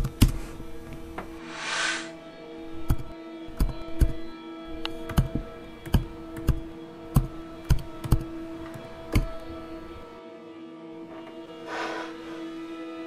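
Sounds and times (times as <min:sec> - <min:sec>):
laptop keys clicking: 0:05.1 - 0:08.3.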